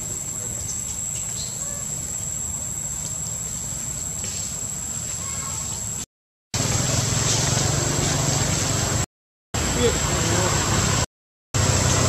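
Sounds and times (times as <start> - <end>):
insects droning: 0.0 - 8.7
faint bird chirps: 0.4 - 2.2.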